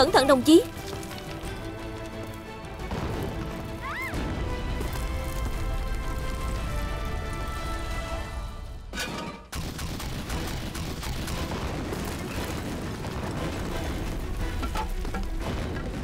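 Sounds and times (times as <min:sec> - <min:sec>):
dramatic background music: 0:00.0 - 0:16.0
artillery shell explosions: 0:00.2 - 0:16.0
gunfire: 0:09.0 - 0:16.0.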